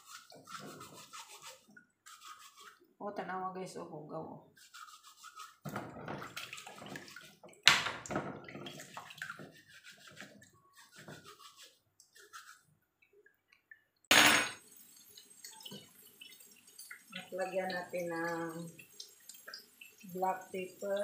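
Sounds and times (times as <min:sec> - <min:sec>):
scouring pad scrubbing shells: 0:00.0 - 0:02.8, 0:04.6 - 0:05.8, 0:08.9 - 0:12.6
water splashing in a basin: 0:04.7 - 0:13.2, 0:14.6 - 0:21.0
water dripping: 0:06.2 - 0:09.6, 0:12.0 - 0:21.0.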